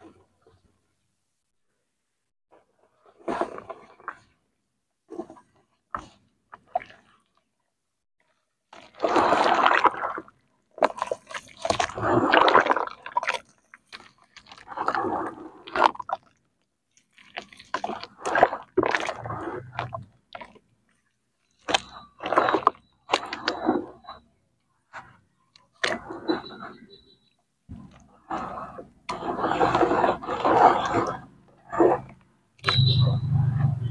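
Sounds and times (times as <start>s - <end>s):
wet mud squelching: 8.7s - 16.4s, 17.0s - 24.2s, 27.8s - 33.9s
muddy water sloshing: 8.7s - 24.2s, 24.9s - 26.9s, 27.7s - 33.9s.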